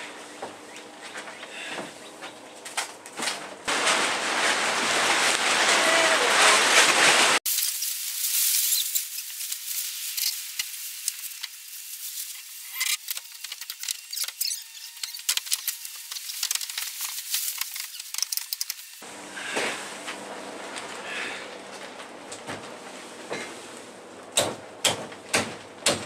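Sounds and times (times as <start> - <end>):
plastic tarp crackling: 2.7 - 19.0.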